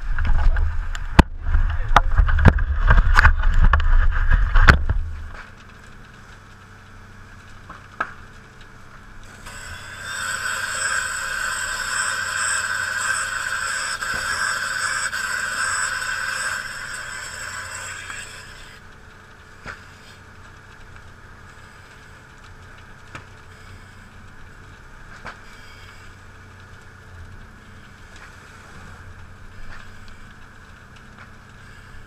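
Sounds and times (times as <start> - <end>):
sharp pops from fire: 0.1 - 10.0, 18.4 - 32.0
loud hiss: 9.2 - 18.8.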